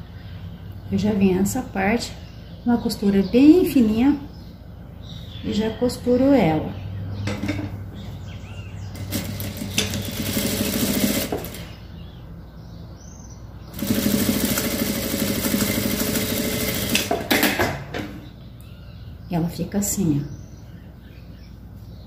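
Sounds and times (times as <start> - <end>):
sewing machine sewing: 9.0 - 11.7, 13.7 - 17.4.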